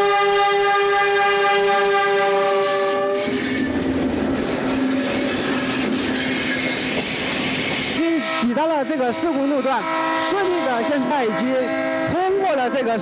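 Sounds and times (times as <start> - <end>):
train horn: 0.0 - 3.8, 8.0 - 13.0
train rushing rumble: 0.0 - 13.0
steady wheel tone: 2.9 - 13.0.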